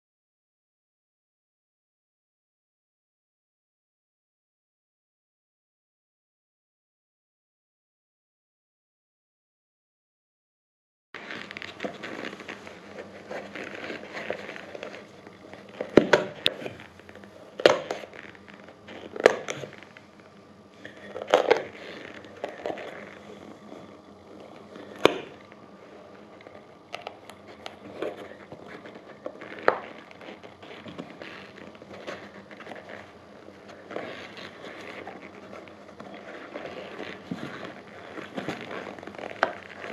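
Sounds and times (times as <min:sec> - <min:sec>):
knife scraping suede: 0:11.2 - 0:20.1, 0:20.8 - 0:39.9.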